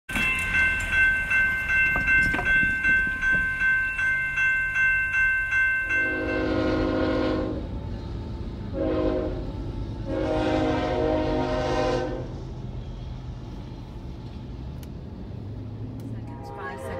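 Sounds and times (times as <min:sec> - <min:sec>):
railroad crossing bell ringing: 0:00.1 - 0:07.7
locomotive air horn blasts: 0:06.0 - 0:07.8, 0:08.7 - 0:12.4, 0:16.2 - 0:16.9.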